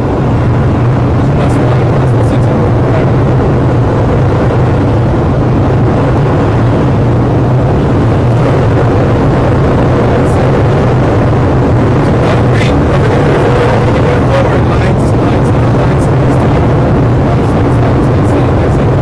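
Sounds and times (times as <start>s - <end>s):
jet engines roaring: 0.0s - 19.0s.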